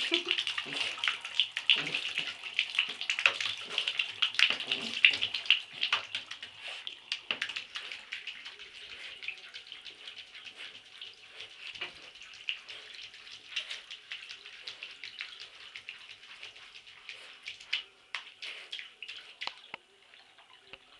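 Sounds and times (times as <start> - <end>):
wet fur rubbing on tub: 3.4 - 19.5.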